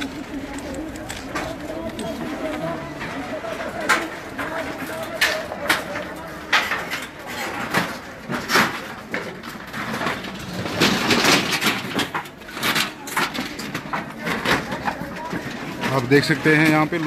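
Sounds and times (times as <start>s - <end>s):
crowd talking: 0.0s - 17.0s.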